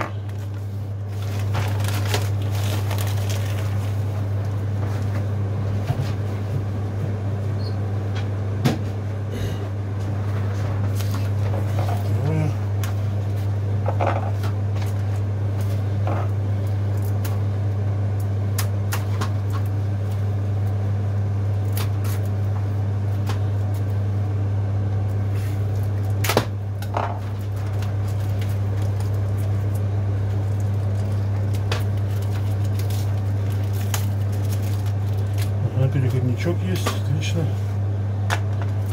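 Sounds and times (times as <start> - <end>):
low electrical hum: 0.0 - 38.9.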